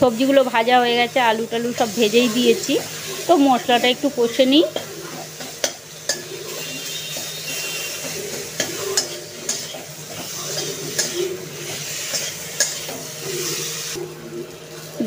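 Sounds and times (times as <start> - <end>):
oil sizzling: 0.0 - 15.0
spatula scraping food in pan: 4.8 - 13.9
spatula knocking on pan: 7.0 - 11.8.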